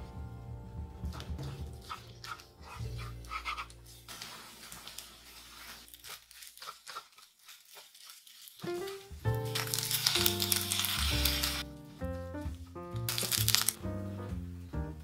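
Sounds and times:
background music low notes: 0:00.0 - 0:06.0, 0:08.6 - 0:15.0
fried rice sizzling: 0:08.6 - 0:11.7, 0:13.1 - 0:13.8.

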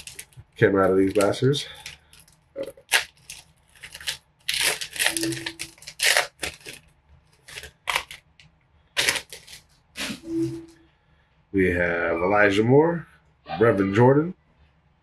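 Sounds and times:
foil wrapper crinkling and tearing: 0:00.0 - 0:10.2.

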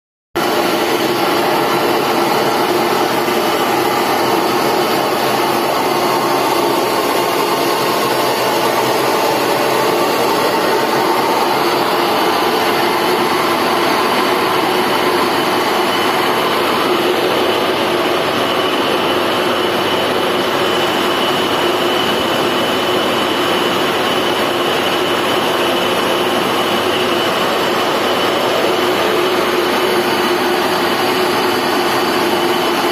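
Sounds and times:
fire pump running: 0:00.4 - 0:32.9.

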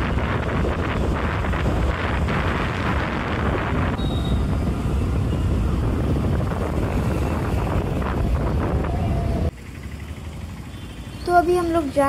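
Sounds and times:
wind rushing on microphone: 0:00.0 - 0:09.5
vehicle rumble on road: 0:00.0 - 0:12.0.

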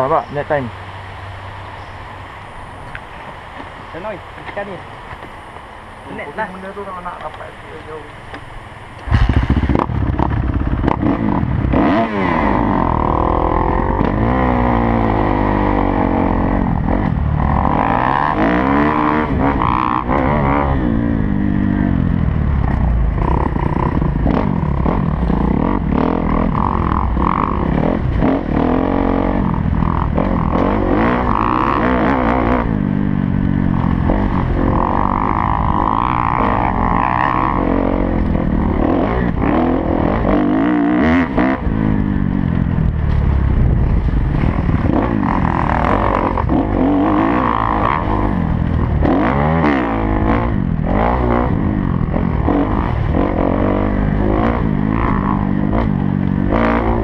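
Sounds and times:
motorcycle engine revving: 0:09.0 - 0:57.0.

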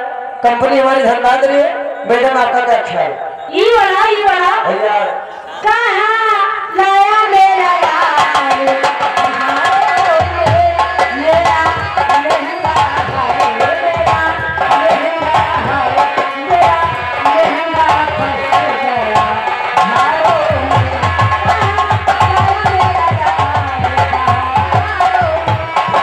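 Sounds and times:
hand drum fast rhythm: 0:07.8 - 0:26.0.

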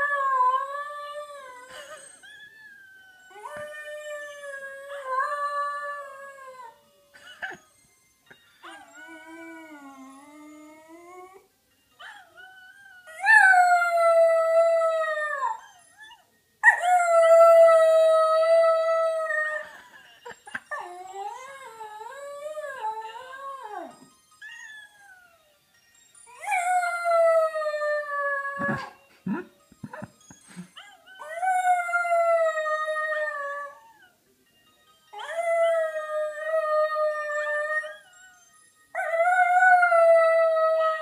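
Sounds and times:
dog howls from a phone: 0:02.4 - 0:07.0, 0:35.2 - 0:41.0.

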